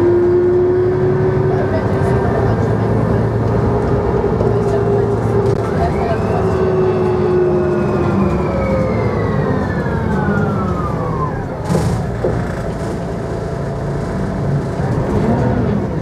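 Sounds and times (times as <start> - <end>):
bus engine rumble: 0.0 - 16.0.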